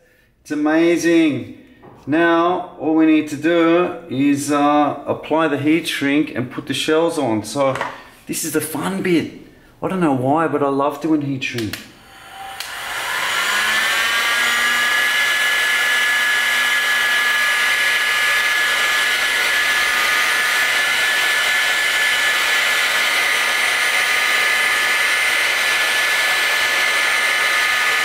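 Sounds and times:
heat gun fan motor whine: 0:11.9 - 0:28.0.

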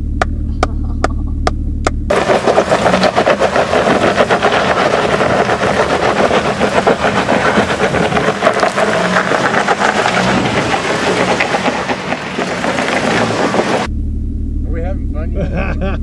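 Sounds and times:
off-road vehicle engine humming: 0:00.0 - 0:16.0
rough crackling over boulders: 0:02.1 - 0:13.9
sharp regular ticking: 0:02.1 - 0:13.9.

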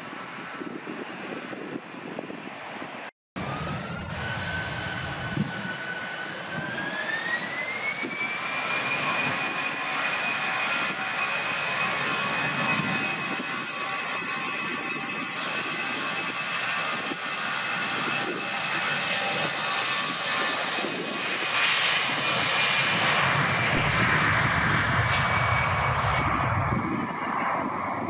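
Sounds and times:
jet engines spooling up: 0:03.4 - 0:28.0.

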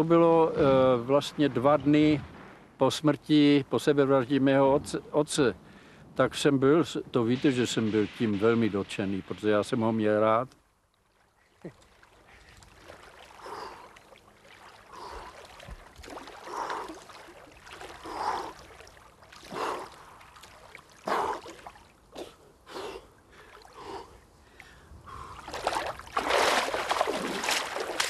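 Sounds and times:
person wading out of water: 0:11.2 - 0:28.0
swimming strokes splashing: 0:11.6 - 0:24.6, 0:25.2 - 0:28.0.

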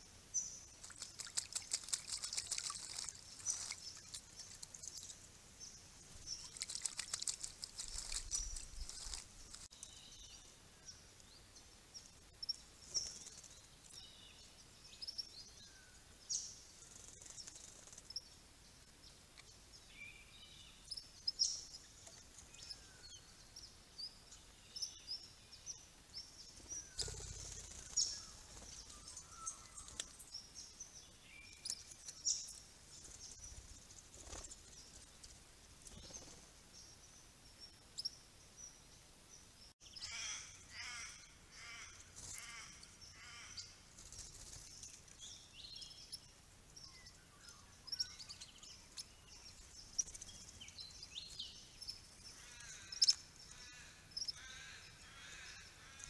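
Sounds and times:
birds chirping: 0:00.3 - 0:56.0
wings fluttering: 0:00.7 - 0:05.3, 0:06.0 - 0:09.8, 0:12.8 - 0:14.0, 0:16.8 - 0:18.2, 0:26.5 - 0:30.3, 0:31.6 - 0:36.6, 0:42.1 - 0:42.6, 0:43.8 - 0:45.2.

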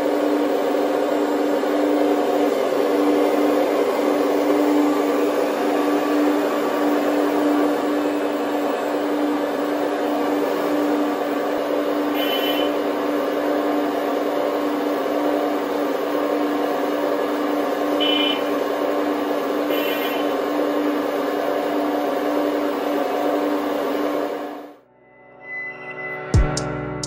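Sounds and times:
hydraulic pumps humming: 0:00.0 - 0:24.6.

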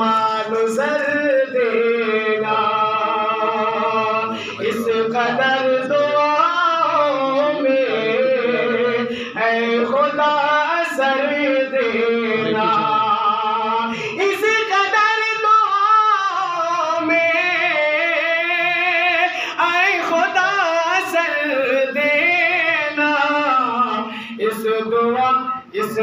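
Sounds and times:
man singing unaccompanied: 0:00.0 - 0:26.0.

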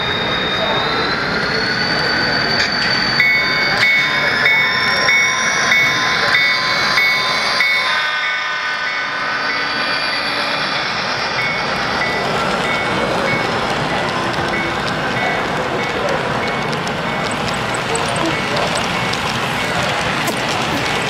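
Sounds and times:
model train wheels rolling: 0:09.4 - 0:21.0.

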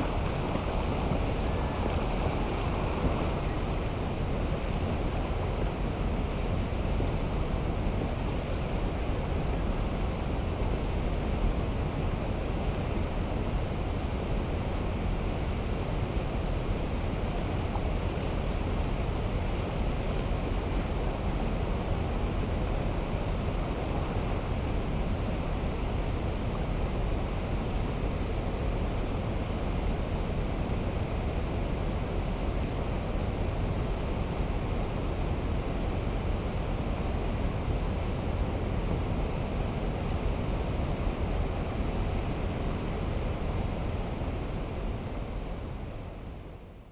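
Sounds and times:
steady rushing noise: 0:00.0 - 0:14.6.

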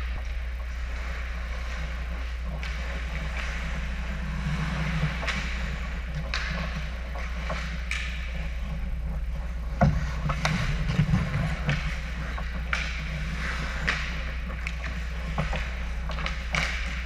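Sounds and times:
hockey sticks and puck clacking: 0:00.0 - 0:17.0
low hum: 0:00.0 - 0:17.0
rough rumbling and knocks: 0:00.0 - 0:17.0
skates scraping on ice: 0:00.7 - 0:17.0.

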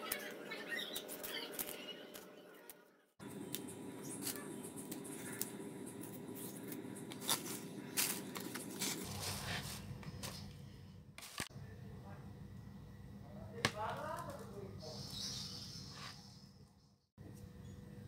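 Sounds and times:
plastic bag rustling: 0:06.0 - 0:10.5.

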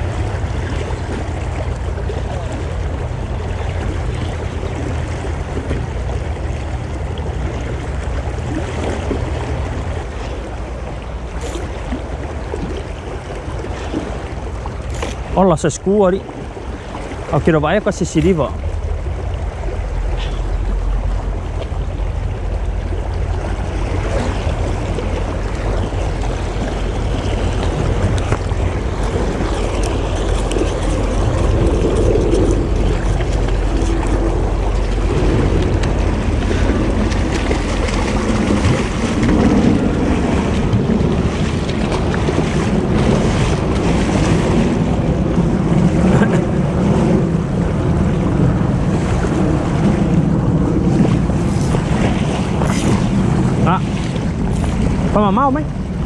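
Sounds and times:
creek water rushing over stones: 0:00.0 - 0:44.3
wind buffeting microphone: 0:00.0 - 0:56.0.

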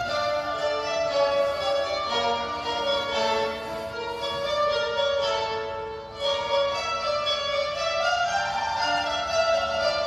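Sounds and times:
qanun plucked strings: 0:00.0 - 0:10.0.

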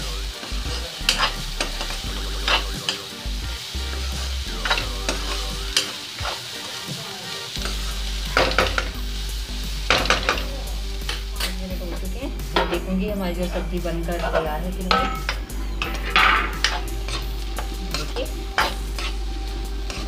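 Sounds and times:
vegetables sizzling in oil: 0:00.0 - 0:20.0
metal spatula scraping pan: 0:00.4 - 0:03.0, 0:09.9 - 0:20.0.

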